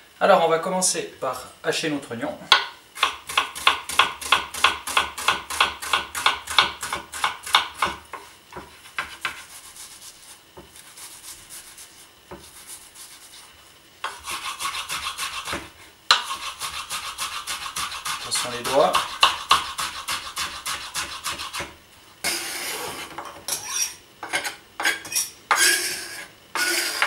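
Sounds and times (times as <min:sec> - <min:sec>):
knife chopping on wooden board: 0:02.5 - 0:09.4, 0:14.0 - 0:21.7.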